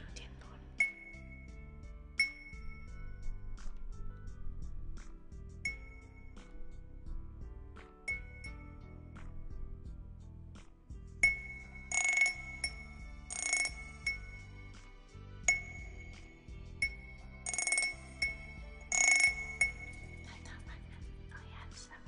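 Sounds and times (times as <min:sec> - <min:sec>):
background music with bass line: 0:00.0 - 0:22.0
metal wind chimes struck: 0:00.8 - 0:01.5, 0:02.2 - 0:03.3, 0:05.7 - 0:06.6, 0:11.2 - 0:14.7, 0:15.4 - 0:20.3.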